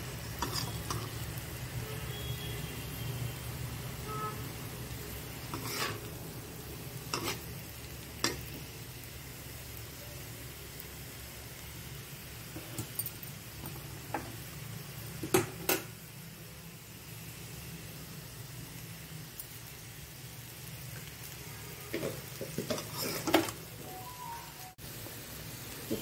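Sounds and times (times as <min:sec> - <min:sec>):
potatoes sizzling in a pan: 0:00.0 - 0:26.0
spatula knocking and scraping pan: 0:05.5 - 0:06.1, 0:07.1 - 0:07.4, 0:21.9 - 0:23.6.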